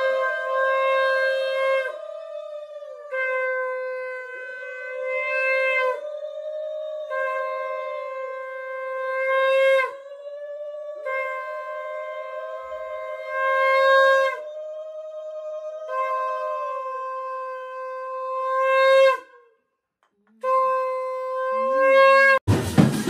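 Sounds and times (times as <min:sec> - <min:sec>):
conch shell blasts: 0:00.0 - 0:02.2, 0:03.0 - 0:06.1, 0:07.1 - 0:10.0, 0:11.0 - 0:14.6, 0:15.9 - 0:19.5, 0:20.4 - 0:22.6
band music with drums: 0:22.5 - 0:23.0.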